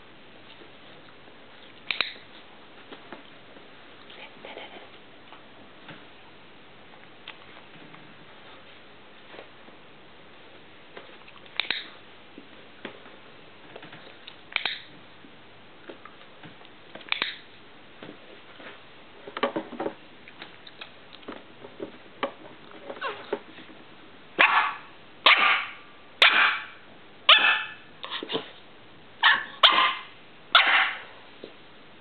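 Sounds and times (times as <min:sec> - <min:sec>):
dog barking: 0:24.4 - 0:27.8, 0:29.2 - 0:31.1.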